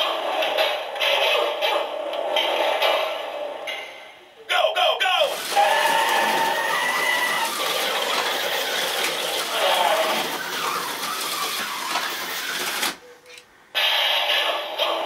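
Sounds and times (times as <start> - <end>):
small electric motors whirring: 5.3 - 13.0
toy cars clattering on plastic track: 5.3 - 13.4.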